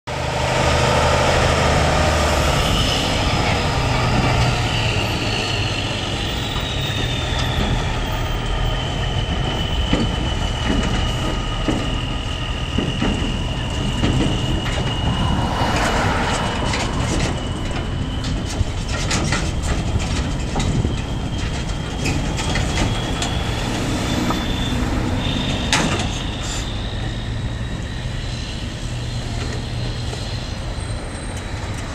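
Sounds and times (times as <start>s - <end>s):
diesel truck engine running: 7.4s - 27.6s.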